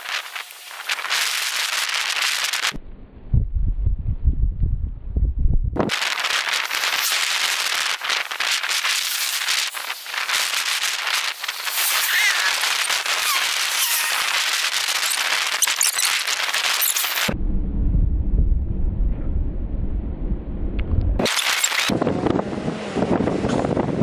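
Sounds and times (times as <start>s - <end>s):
heavy rain falling: 5.9s - 17.4s.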